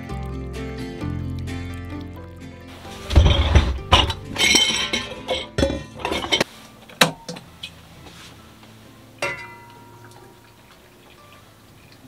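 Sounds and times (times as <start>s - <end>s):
background music: 0.0s - 12.0s
kitchenware clinking and knocking: 2.8s - 7.4s, 9.2s - 10.0s.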